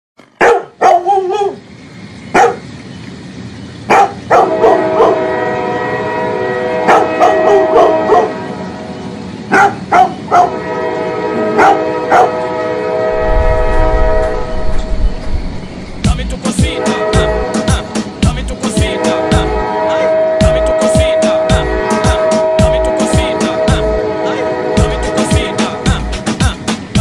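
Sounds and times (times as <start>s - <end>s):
dog barking: 0.4s - 1.6s, 2.3s - 2.6s, 3.9s - 5.2s, 6.9s - 8.4s, 9.5s - 10.6s, 11.5s - 12.4s
train horn blasts: 4.3s - 9.2s, 10.2s - 26.3s
low rumble: 13.1s - 16.4s.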